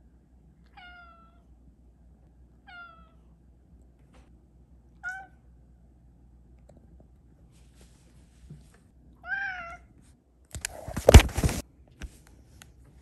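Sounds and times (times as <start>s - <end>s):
cat meowing: 0.7s - 1.5s, 2.6s - 3.2s, 5.0s - 5.4s, 9.2s - 9.9s.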